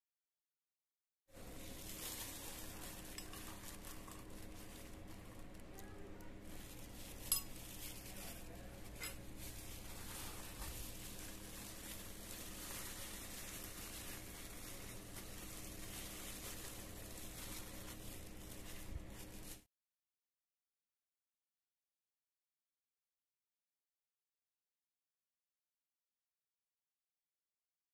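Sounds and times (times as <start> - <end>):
steady hiss and low hum: 1.3 - 19.6
gloved hands handling food: 1.3 - 19.7.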